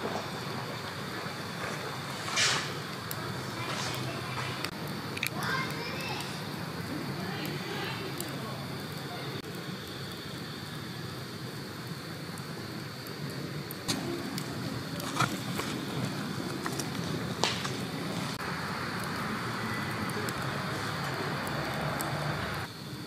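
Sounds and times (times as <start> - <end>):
bright hiss: 0.0 - 23.0
burning wood popping: 0.0 - 23.0
flames rushing: 0.0 - 23.0.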